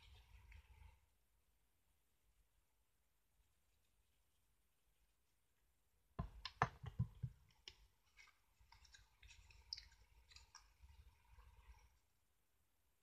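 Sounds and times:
sharp clicks and taps: 0:06.2 - 0:07.9.

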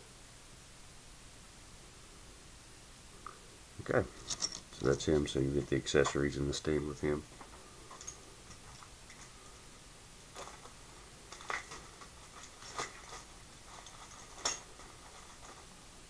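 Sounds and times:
faint room hiss: 0:00.0 - 0:16.0.

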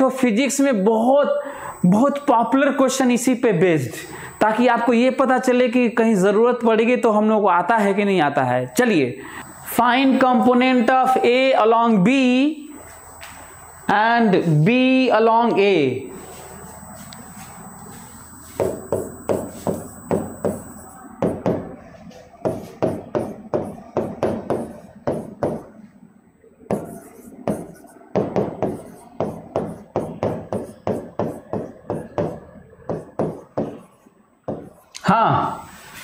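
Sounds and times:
writing taps on a board: 0:18.6 - 0:20.6, 0:22.4 - 0:25.7, 0:26.7 - 0:33.8, 0:34.5 - 0:34.7.

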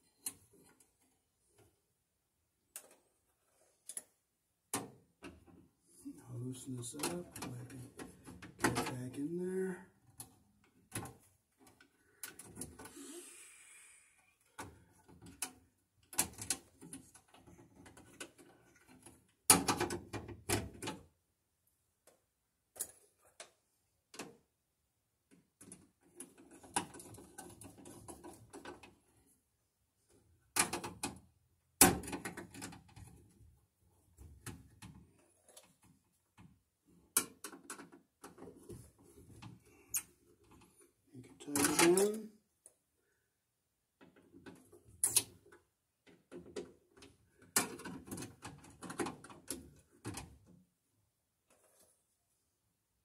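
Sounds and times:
clicks and scrapes of wiring work: 0:00.0 - 0:01.7, 0:02.7 - 0:13.1, 0:14.4 - 0:21.0, 0:22.0 - 0:24.4, 0:25.3 - 0:29.2, 0:34.2 - 0:42.3, 0:44.0 - 0:50.5.

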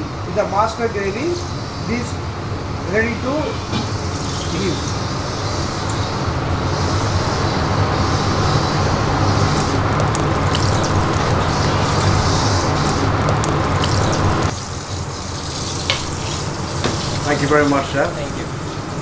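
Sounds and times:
kitchen gas range and ventilation roar: 0:00.0 - 0:19.0.

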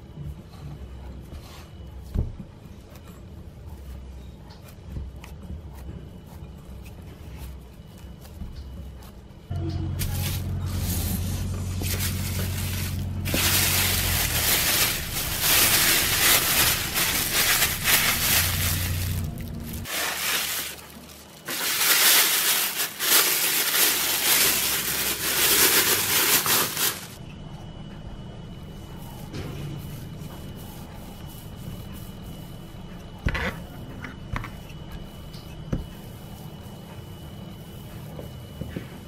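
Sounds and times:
cling film crinkling: 0:10.1 - 0:27.2.

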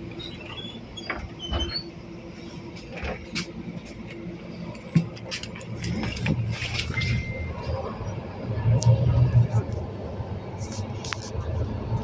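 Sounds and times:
bus door mechanism creaking: 0:00.0 - 0:02.0
bus low hum: 0:00.0 - 0:12.0.

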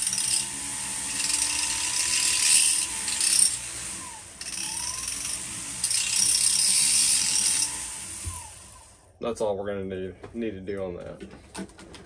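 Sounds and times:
rotary tool grinding metal: 0:00.0 - 0:09.0.

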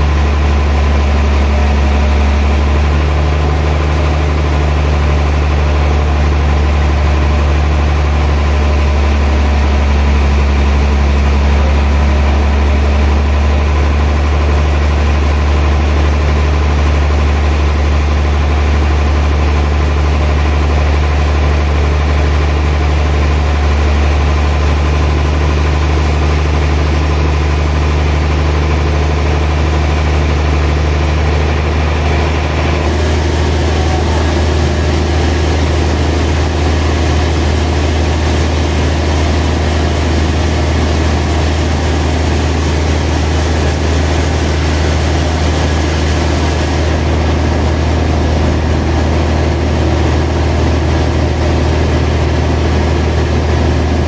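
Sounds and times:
band saw cutting log: 0:23.3 - 0:48.0.

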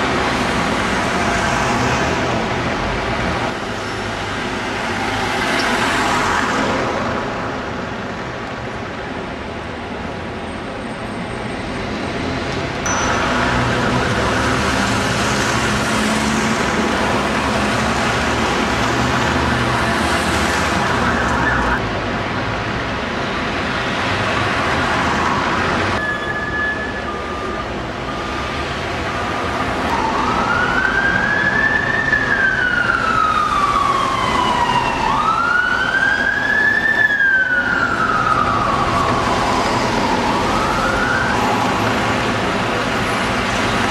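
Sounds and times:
bus and car engines running: 0:00.0 - 0:43.9
emergency siren wailing: 0:13.2 - 0:21.8, 0:24.2 - 0:43.9.

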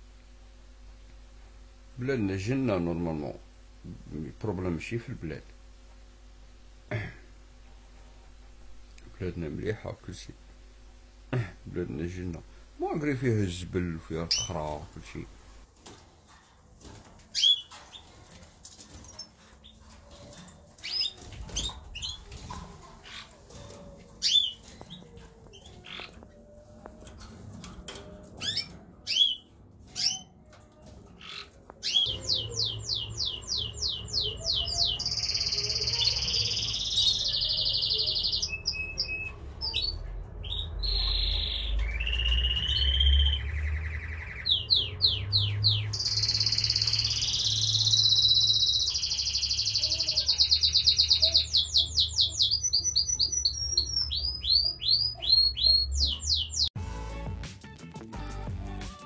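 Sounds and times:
low steady hum: 0:00.0 - 0:37.6
finch singing trills: 0:14.3 - 0:15.2, 0:17.3 - 0:18.1, 0:19.1 - 0:26.3, 0:27.9 - 0:30.4, 0:31.2 - 0:56.7.

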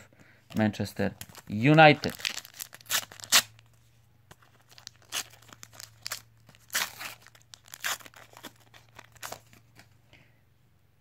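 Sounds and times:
foil wrapper tearing and crinkling: 0:01.2 - 0:03.6, 0:04.6 - 0:09.6.

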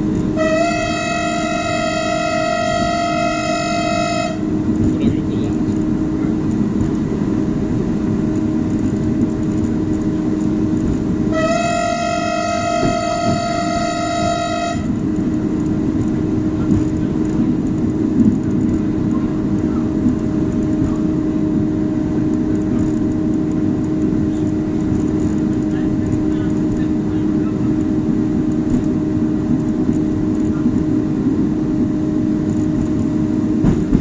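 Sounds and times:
train rumbling: 0:00.0 - 0:34.0
train warning horn blast: 0:00.3 - 0:04.6, 0:11.2 - 0:15.1.

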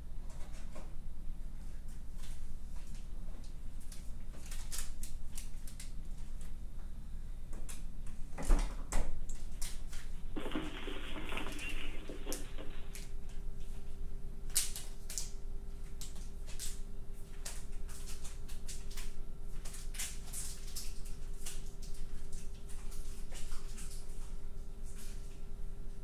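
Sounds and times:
steady hum: 0:10.1 - 0:14.6.

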